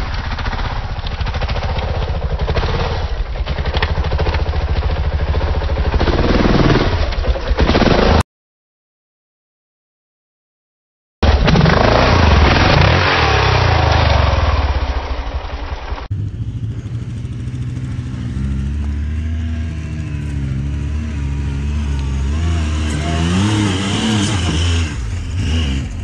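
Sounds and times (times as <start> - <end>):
dirt bike engine revving: 0.3 - 8.2, 11.2 - 26.0
utility vehicle engine revving: 11.3 - 14.9, 16.0 - 26.0.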